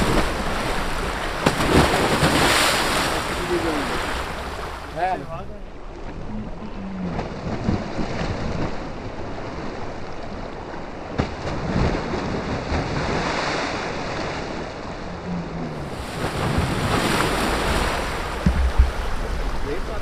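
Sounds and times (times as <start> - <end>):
floodwater rushing against bank: 0.0 - 20.0
wind on microphone: 6.2 - 20.0
earth chunk splashing into water: 18.2 - 19.4.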